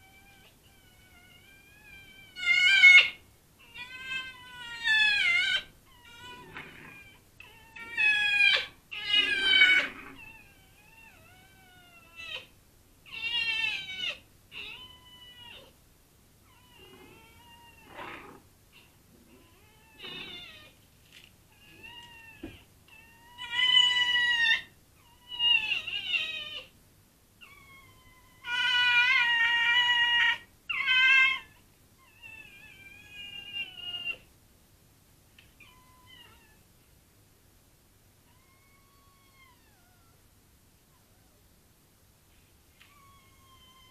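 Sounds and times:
cat yowling: 0.0 - 12.5, 27.5 - 34.3.

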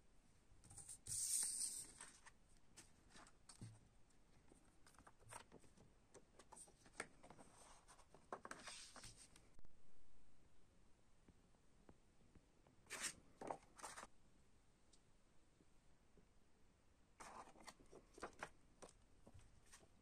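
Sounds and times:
paper rustling: 0.8 - 3.7, 4.8 - 9.4, 12.9 - 14.1, 17.2 - 20.0.

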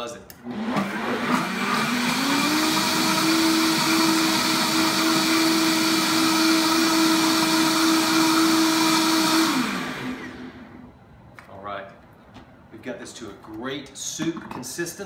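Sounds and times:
blender motor whining: 0.4 - 10.9.

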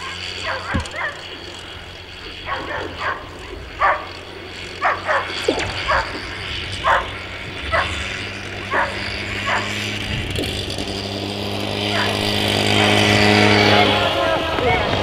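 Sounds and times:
steady low hum: 0.0 - 15.0
dog barking: 0.4 - 1.4, 2.5 - 4.2, 4.8 - 6.2, 6.8 - 7.1, 7.7 - 8.0, 8.7 - 9.8, 11.9 - 12.2.

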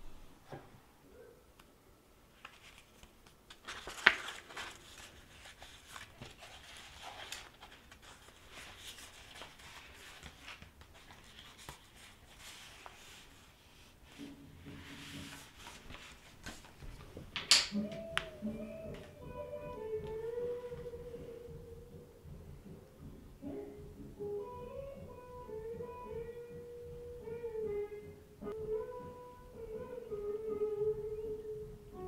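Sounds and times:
paper pages rustling: 2.3 - 17.4
paper scrape: 2.4 - 16.8.

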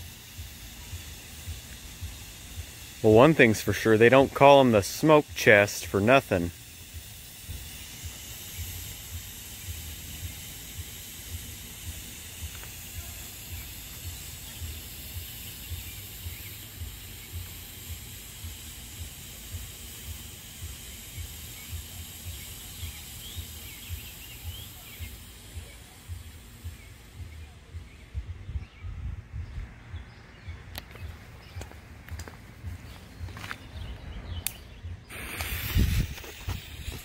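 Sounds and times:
smoke firework hissing: 0.0 - 28.2, 30.9 - 37.0
wind rumble on microphone: 27.7 - 30.8, 32.6 - 37.0.

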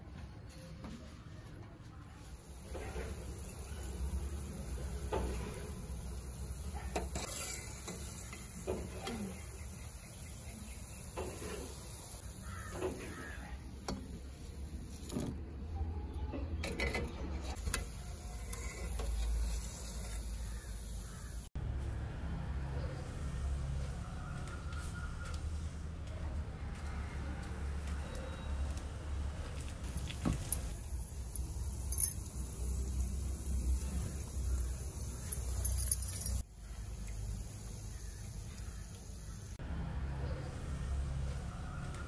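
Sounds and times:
oil sizzling: 2.4 - 15.2, 17.6 - 21.5, 29.9 - 39.6
skimmer scraping a steel pan: 6.8 - 9.4
short sharp clinks: 29.9 - 32.7, 35.2 - 36.4.

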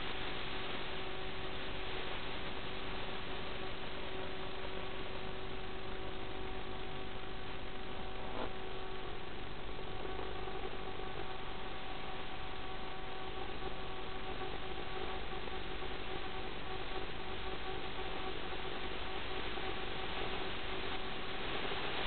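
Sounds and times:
faint constant hum: 0.0 - 22.0
static hiss: 0.0 - 22.0.

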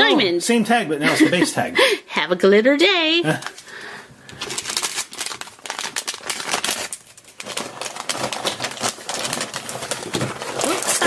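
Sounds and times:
foil packet crinkling: 3.3 - 11.0.

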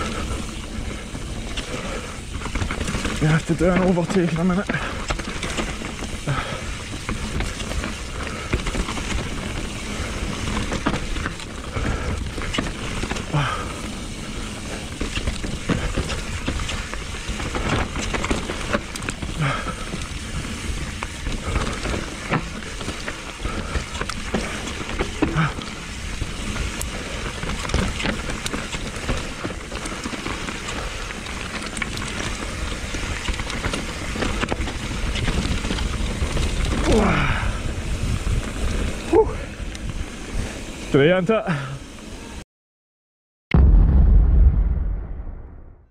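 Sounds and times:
tyres crunching over gravel: 0.0 - 40.9
bike rattling: 0.0 - 42.4
wind buffeting microphone: 34.7 - 40.7.

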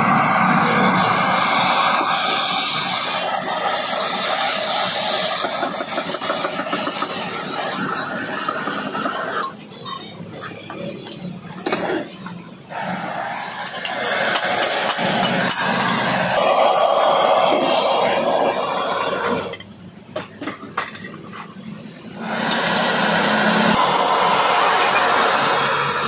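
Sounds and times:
gas torch flame hissing: 0.0 - 9.7, 12.7 - 19.6, 22.1 - 26.0.

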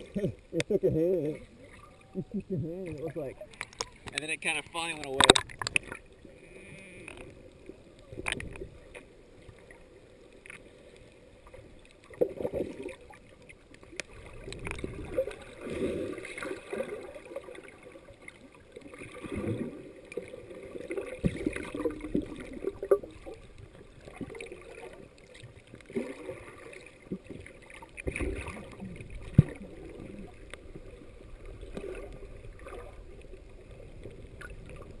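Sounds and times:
underwater water swishing and gurgling: 0.0 - 35.0
sharp underwater knocks: 5.2 - 6.0.

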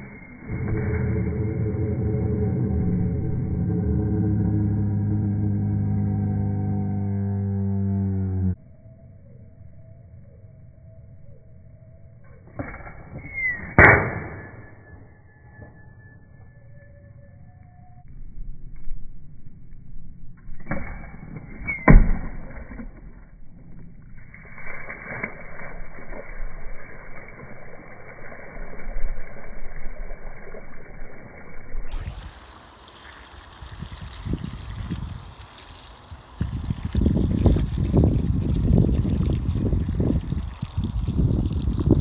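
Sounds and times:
sharp crack: 13.7 - 14.6
water gushing and splashing: 24.2 - 42.0.

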